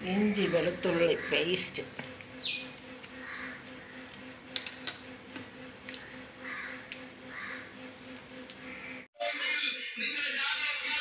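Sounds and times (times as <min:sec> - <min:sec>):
crow cawing: 0:00.4 - 0:01.6, 0:03.2 - 0:04.1, 0:06.4 - 0:07.7, 0:08.6 - 0:09.0.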